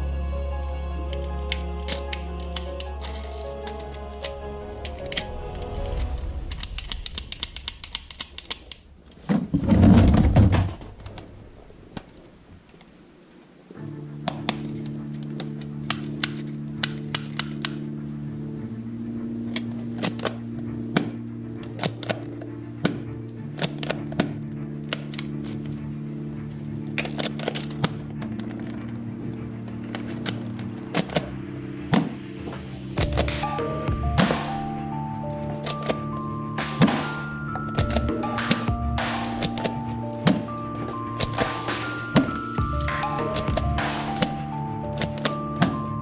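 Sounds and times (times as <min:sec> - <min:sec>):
low hum: 0:00.0 - 0:46.0
fast sharp clicks: 0:01.8 - 0:09.4, 0:31.9 - 0:46.0
deep loud noise: 0:03.4 - 0:12.7.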